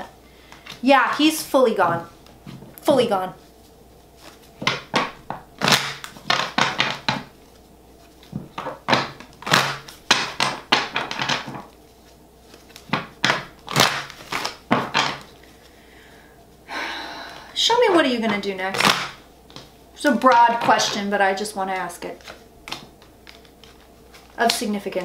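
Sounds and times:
cards shuffling and snapping: 4.2 - 11.8, 12.4 - 15.5, 18.7 - 19.7, 21.8 - 24.7.

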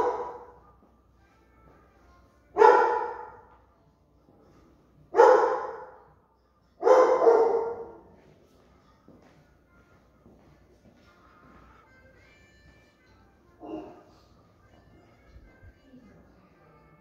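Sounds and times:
dog barking: 0.0 - 0.6, 2.6 - 3.5, 5.1 - 6.1, 6.8 - 8.1, 13.6 - 14.2.

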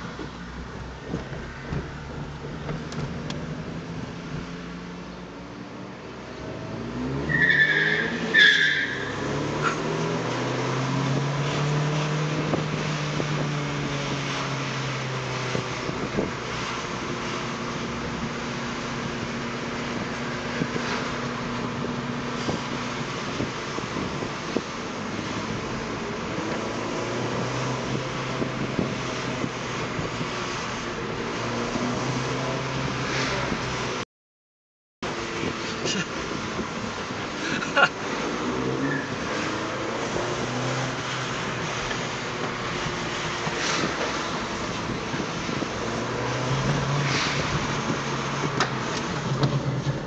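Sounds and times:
car engine from inside cabin: 0.0 - 7.2
car engine and road noise: 0.0 - 34.1, 35.0 - 50.0.

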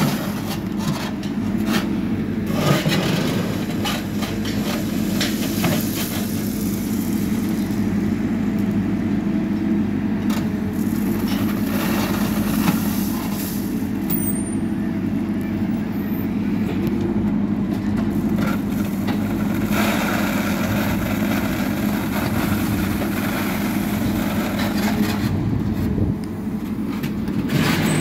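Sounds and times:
diesel engine running: 0.0 - 28.0
bucket clattering on gravel: 2.5 - 6.9.

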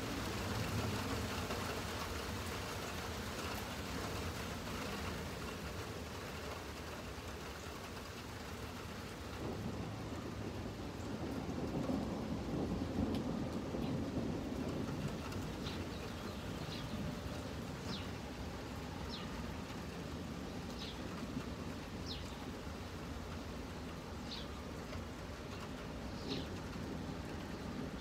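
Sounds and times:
distant thunder rumble: 0.0 - 6.5, 7.8 - 28.0
bird chirping: 15.6 - 17.2, 17.8 - 18.2, 19.0 - 19.4, 24.2 - 24.6.

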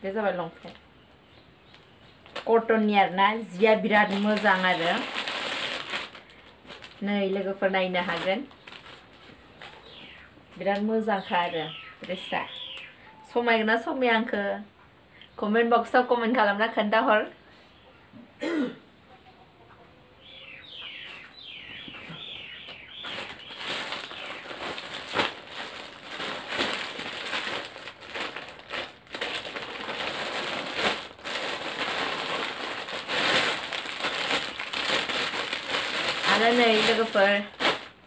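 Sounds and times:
plastic packaging crinkling: 3.5 - 10.1, 22.2 - 38.0.

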